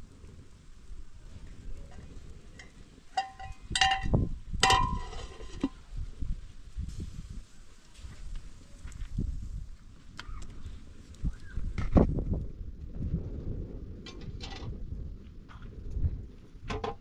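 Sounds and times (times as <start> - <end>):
metal pot lid clinking: 3.2 - 5.7.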